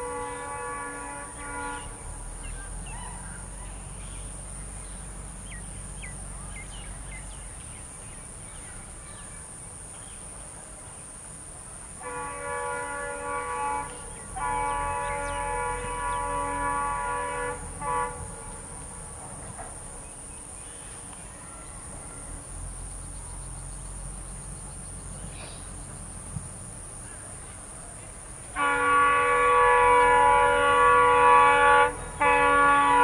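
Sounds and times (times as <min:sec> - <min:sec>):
locomotive multi-tone horn: 0:00.0 - 0:02.4, 0:12.0 - 0:19.7, 0:28.5 - 0:33.0
diesel engine low rumble: 0:00.0 - 0:33.0.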